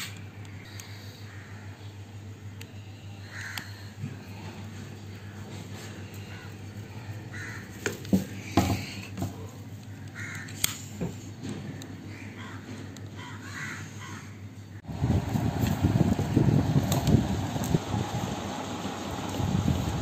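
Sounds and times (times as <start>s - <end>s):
crows cawing: 0.4s - 9.1s, 9.9s - 10.9s, 11.6s - 14.5s.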